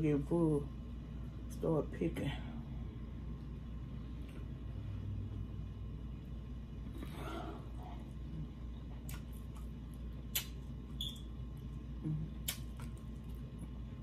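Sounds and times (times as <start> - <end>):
steady low hum: 0.0 - 14.0
chewing clicks and smacks: 9.0 - 11.2, 12.4 - 13.8.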